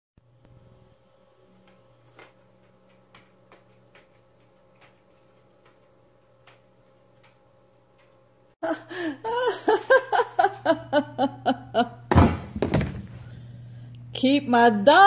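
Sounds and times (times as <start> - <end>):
gasping laughs: 8.6 - 12.0.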